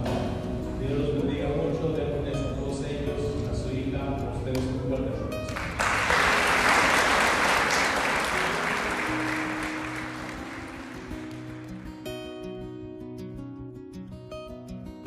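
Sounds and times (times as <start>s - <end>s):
music playing: 0.0s - 15.0s
crowd applause: 5.5s - 12.0s.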